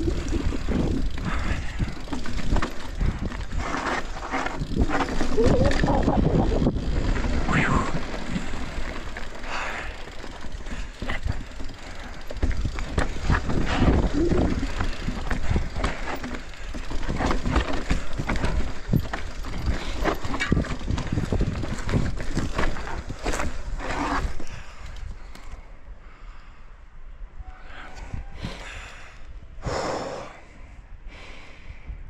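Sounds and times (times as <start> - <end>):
chain and frame rattling: 0.0 - 24.5
wind rumbling on microphone: 0.0 - 25.3
bike tyres on dirt and rock: 0.0 - 26.5.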